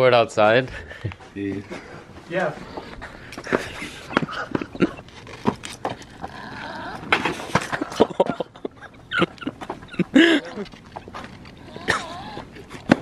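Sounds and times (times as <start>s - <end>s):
longboard clattering on pavement: 1.5s - 13.0s.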